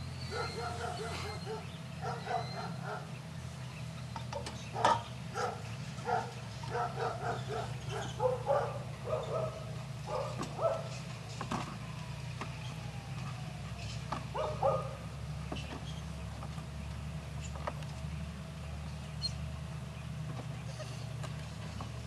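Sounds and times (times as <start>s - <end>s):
puppy whining and yipping: 0.2s - 3.0s.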